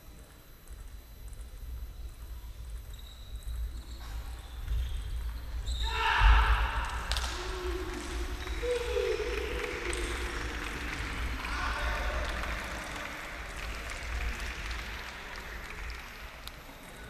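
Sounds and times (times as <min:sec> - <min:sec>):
spectators clapping and cheering: 0:05.9 - 0:17.0.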